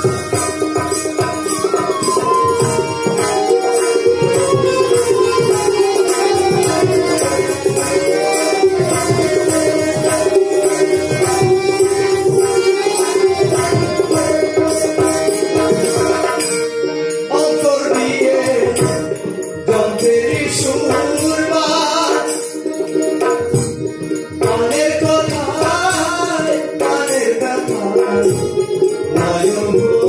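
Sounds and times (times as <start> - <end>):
hand drums: 0.0 - 30.0
held melody notes: 0.0 - 30.0
plucked string instrument: 0.0 - 30.0.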